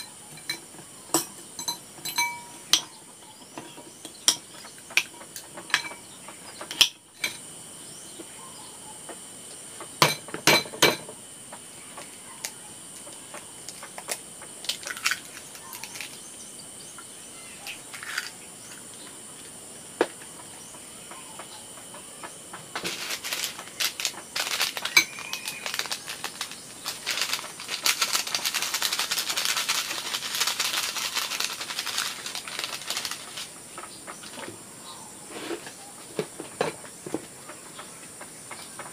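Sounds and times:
kitchen utensils clinking: 0:00.0 - 0:07.4, 0:10.0 - 0:11.1, 0:22.8 - 0:30.1
food frying in hot oil: 0:22.8 - 0:33.6.

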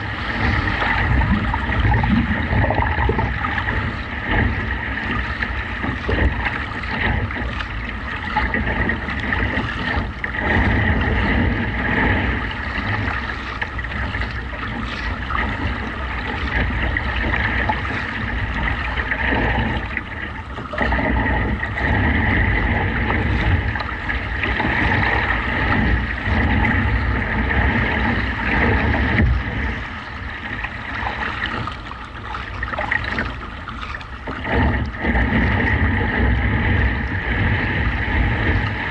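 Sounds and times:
paddle splashes: 0:00.0 - 0:38.9
waves slapping against hull: 0:00.0 - 0:38.9
wind buffeting microphone: 0:00.0 - 0:38.9.

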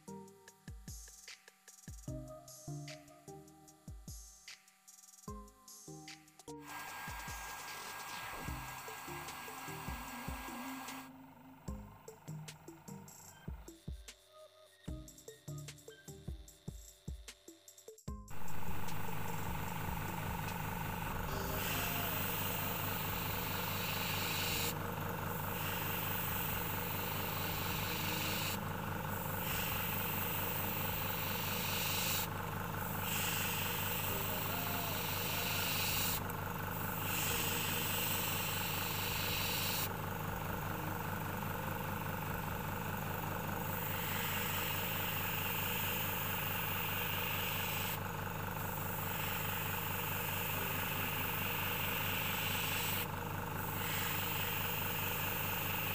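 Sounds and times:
airbrush hissing: 0:06.6 - 0:11.1, 0:18.3 - 0:55.9
air compressor humming: 0:06.6 - 0:14.1, 0:18.3 - 0:55.9.

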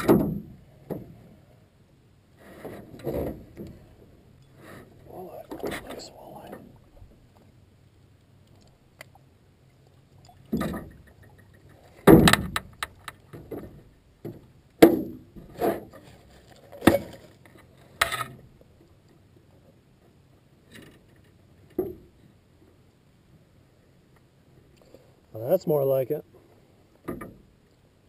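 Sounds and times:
thumps and rattles in metal boat: 0:00.0 - 0:01.3, 0:12.0 - 0:17.3.

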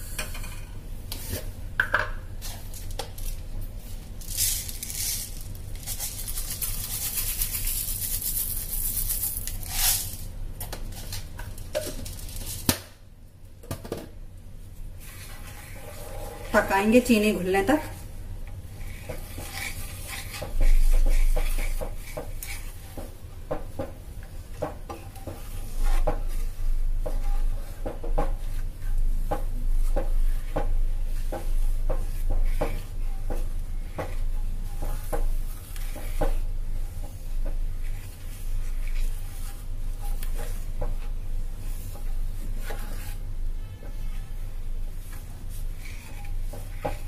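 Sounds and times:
wooden spatula stirring in a pan: 0:14.8 - 0:47.0
spatula knocking and scraping pan: 0:15.0 - 0:47.0.

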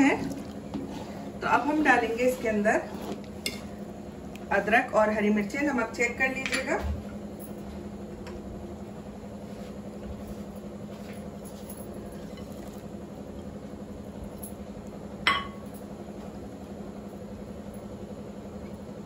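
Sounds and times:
steady low hum: 0:00.0 - 0:19.0
glass bowl clink: 0:15.3 - 0:15.7.

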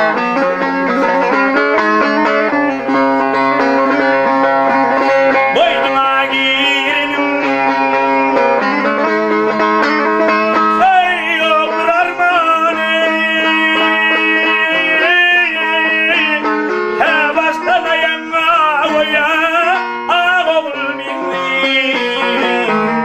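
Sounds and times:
strummed lute: 0:00.0 - 0:23.0
man singing: 0:04.0 - 0:23.0.

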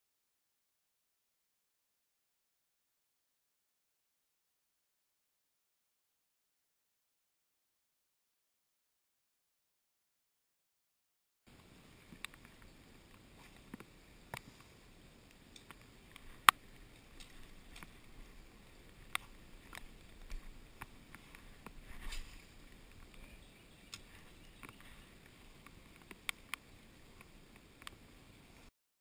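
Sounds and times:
river water hiss: 0:11.5 - 0:28.7.

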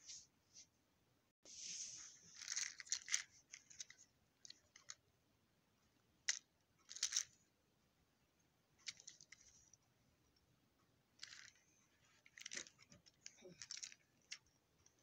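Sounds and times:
plastic toy clicks and rustles: 0:02.4 - 0:05.0, 0:06.2 - 0:07.4, 0:08.8 - 0:09.6, 0:11.2 - 0:15.0.

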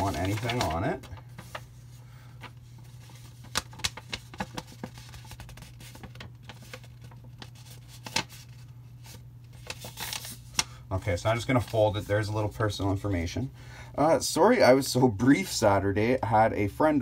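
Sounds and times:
paper rustling: 0:00.0 - 0:13.1
steady low hum: 0:00.0 - 0:17.0.

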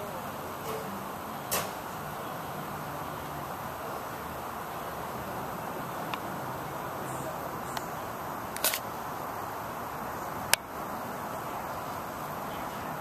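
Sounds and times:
steady outdoor hiss: 0:00.0 - 0:13.0
camera handling clicks: 0:08.6 - 0:08.8.

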